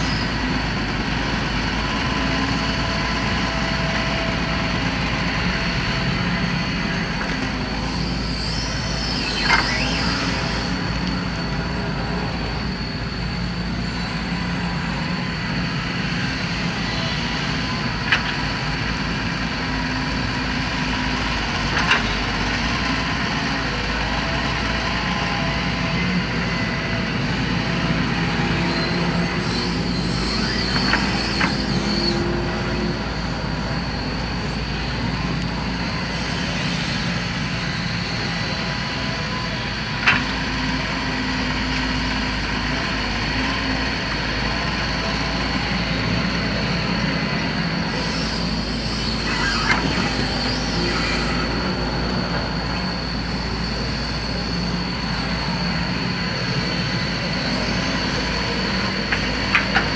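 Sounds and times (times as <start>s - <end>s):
diesel engine running: 0.0s - 59.9s
thin high whine: 7.7s - 17.8s, 47.5s - 59.9s.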